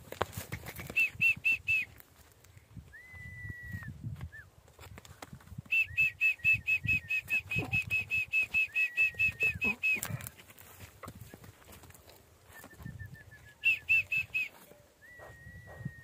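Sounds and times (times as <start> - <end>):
bird whistle: 5.7 - 10.2, 12.6 - 16.0.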